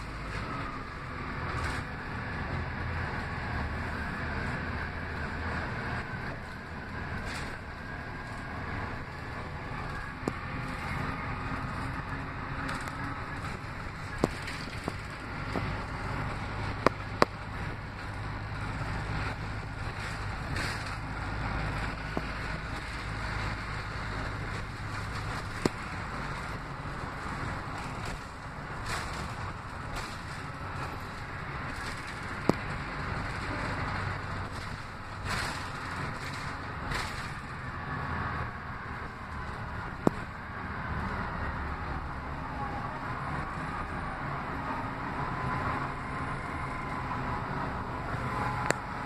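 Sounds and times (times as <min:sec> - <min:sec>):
bus engine and road rumble: 0:00.0 - 0:49.0.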